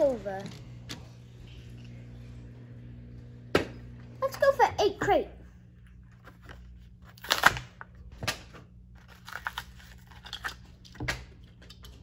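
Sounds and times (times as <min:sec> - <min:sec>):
plastic packaging crackling and tearing: 0:06.2 - 0:11.6.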